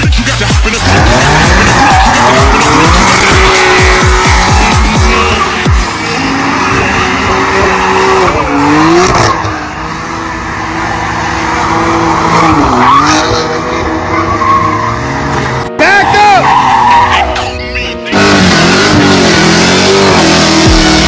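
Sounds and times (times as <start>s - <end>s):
car engine revving high: 0.6s - 15.7s, 18.1s - 21.0s
tires skidding on asphalt: 0.7s - 17.5s, 18.1s - 21.0s.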